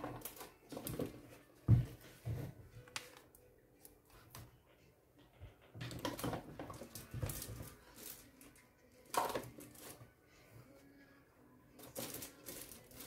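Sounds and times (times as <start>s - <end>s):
paper rustling and scraping: 11.8s - 13.0s.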